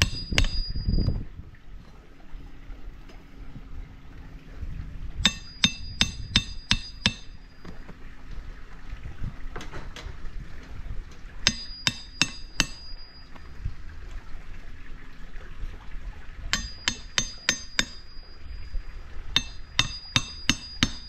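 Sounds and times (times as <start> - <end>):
hammer striking metal: 0.0 - 0.8, 5.2 - 7.4, 11.5 - 13.1, 16.5 - 18.2, 19.4 - 21.0.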